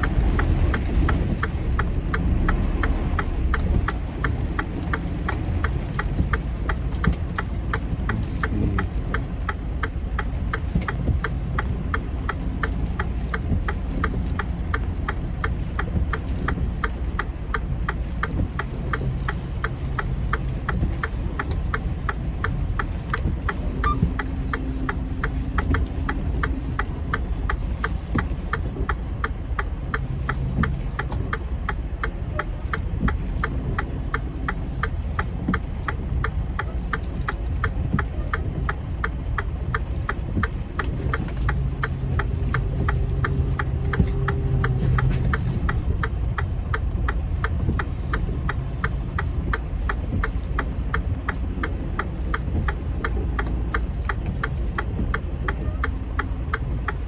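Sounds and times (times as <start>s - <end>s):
diesel engine low rumble: 0.0s - 57.0s
fast even clicking: 0.0s - 57.0s.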